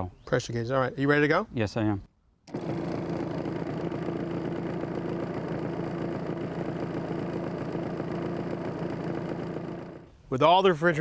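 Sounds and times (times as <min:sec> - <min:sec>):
recovery machine compressor humming: 0:02.5 - 0:10.1.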